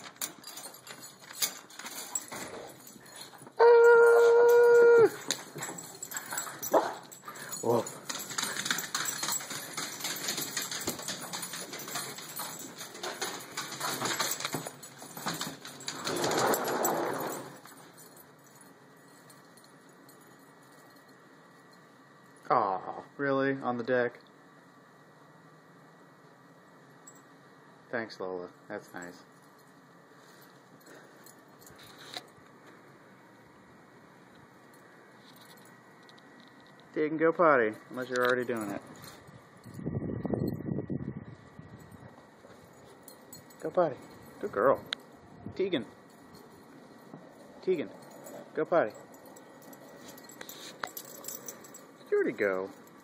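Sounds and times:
dog claws scrabbling on hard floor: 8.1 - 17.5
glass door sliding open: 16.0 - 17.6.

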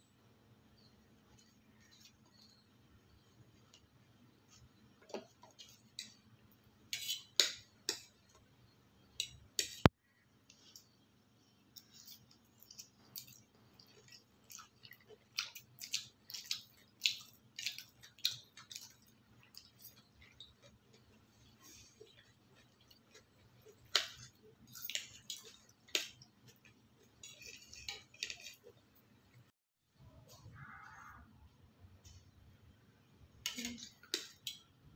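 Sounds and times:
noodles being chewed: 11.7 - 29.5.

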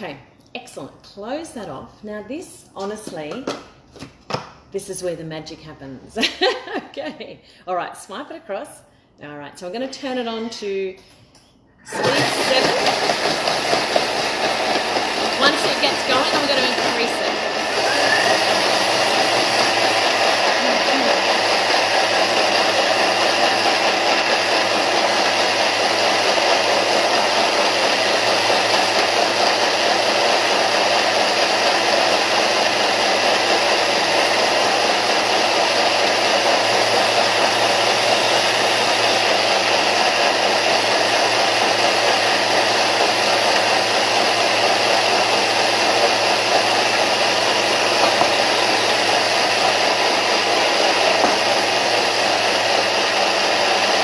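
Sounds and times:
blender motor whirring: 11.8 - 54.0.

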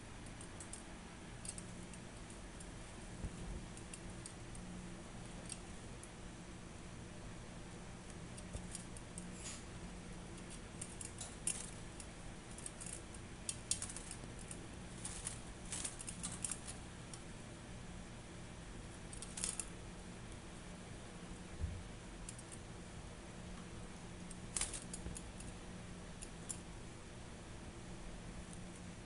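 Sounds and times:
steady low hum: 0.0 - 29.0
wing fluttering: 8.4 - 16.9.

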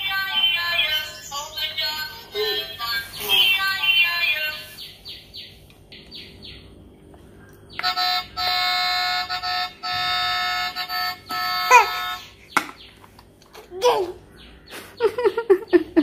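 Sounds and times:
electronic toy melody: 7.8 - 12.4.

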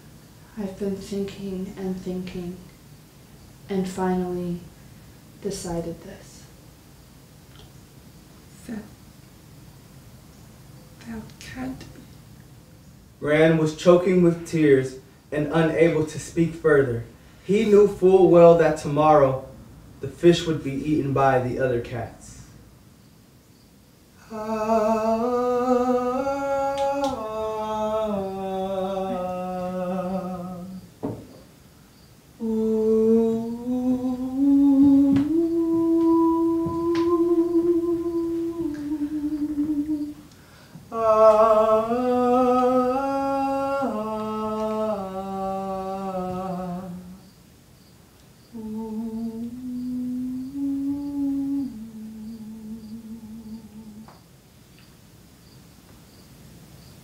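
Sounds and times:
person humming a slow melody: 24.2 - 31.0, 32.4 - 47.3, 48.5 - 54.3.

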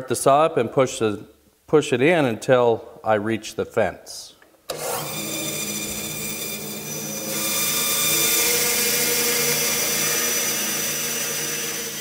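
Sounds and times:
bandsaw blade cutting wood: 4.7 - 12.0
bandsaw whine: 4.7 - 12.0.

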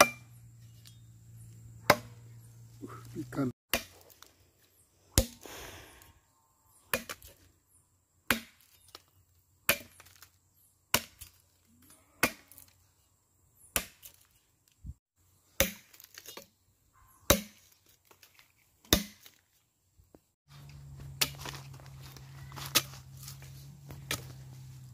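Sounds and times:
machete chopping wooden log: 0.0 - 0.3, 1.8 - 2.2, 3.7 - 4.2, 5.1 - 5.4, 6.9 - 7.4, 8.3 - 9.0, 9.7 - 10.3, 10.9 - 11.4, 12.2 - 12.6, 13.7 - 14.3, 15.6 - 16.4, 17.3 - 17.8, 18.8 - 19.4.

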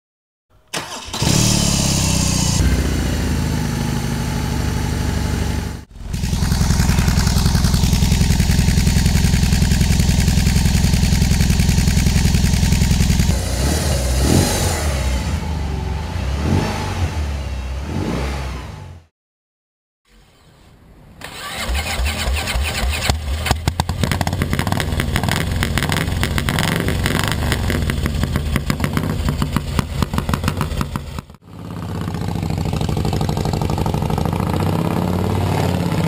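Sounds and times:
motorcycle engine starting and running: 0.7 - 19.1, 21.2 - 36.0
motorcycle throttle blips: 22.6 - 34.7.

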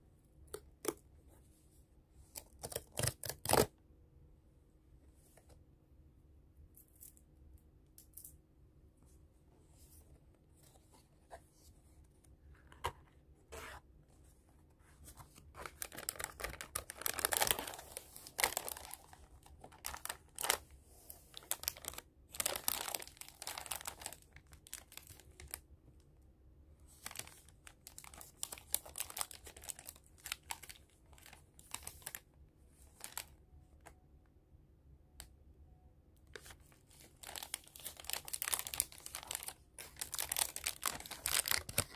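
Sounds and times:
cardboard and foil crinkling: 15.6 - 20.6, 21.3 - 25.6, 27.0 - 32.2, 36.9 - 41.9.

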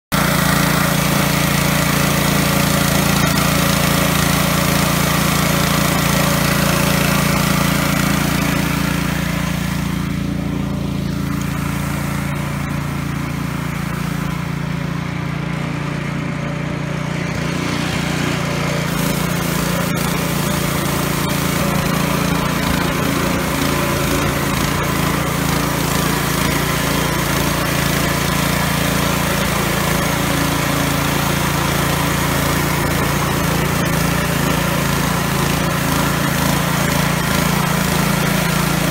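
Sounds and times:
small petrol engine running: 0.0 - 38.9
rotating brush hissing on paving: 0.2 - 38.9.

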